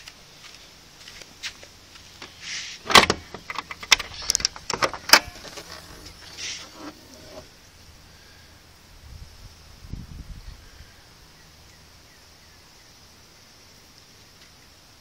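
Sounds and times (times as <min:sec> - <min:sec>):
car hood latch clunk: 0:02.9 - 0:03.5.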